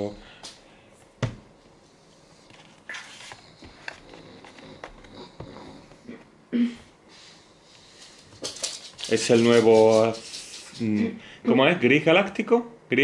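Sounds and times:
soft rustles: 7.8s - 11.0s.

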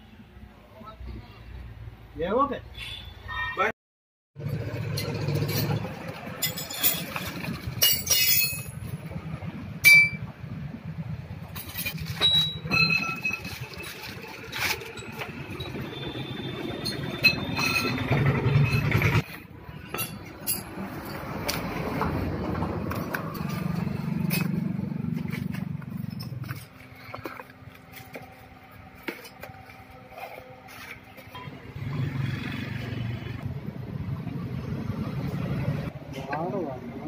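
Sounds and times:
metal clinks: 5.0s - 9.0s.

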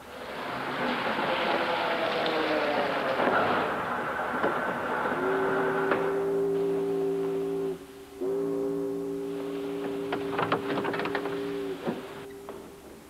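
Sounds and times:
train horn blasts: 4.8s - 12.8s.

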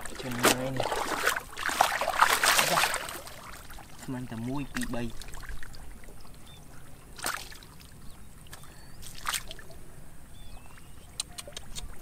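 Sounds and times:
brief water splashes: 0.0s - 3.6s, 8.5s - 9.6s
hands moving in muddy water: 0.0s - 5.9s, 8.5s - 9.7s.

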